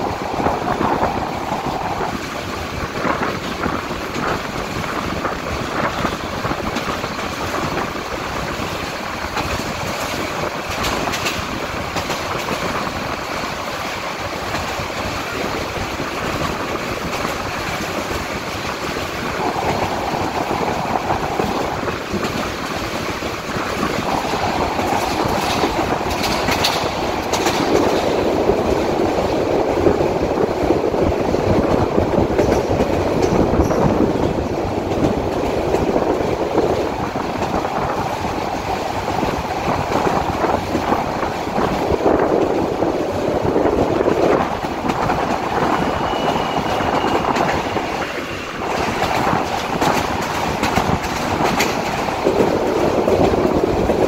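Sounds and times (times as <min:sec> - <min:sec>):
train rumbling and rattling: 0:00.0 - 0:54.0.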